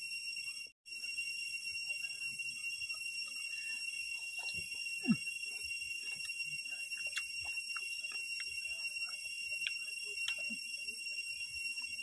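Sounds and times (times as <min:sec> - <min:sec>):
high-pitched insect chorus: 0:00.0 - 0:12.0
chewing and crunching shrimp: 0:04.1 - 0:10.7.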